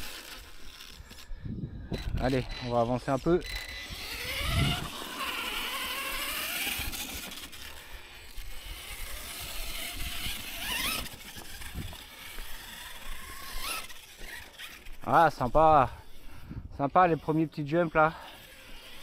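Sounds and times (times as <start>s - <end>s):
electric motor whining: 0.0s - 19.0s
tyre and drivetrain noise: 0.0s - 19.0s.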